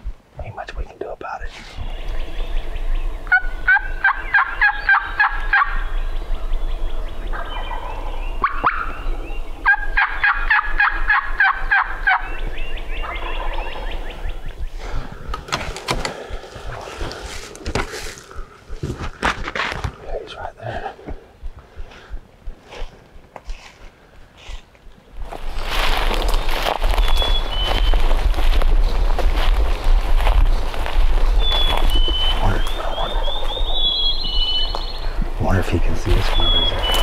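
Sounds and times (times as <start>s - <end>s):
turkey gobbling: 3.2s - 5.8s, 7.3s - 12.4s, 35.6s - 37.0s
rustling: 22.6s - 32.3s.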